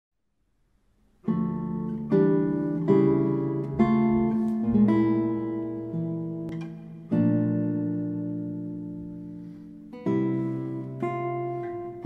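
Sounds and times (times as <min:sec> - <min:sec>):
classical guitar chords: 0:01.1 - 0:12.0.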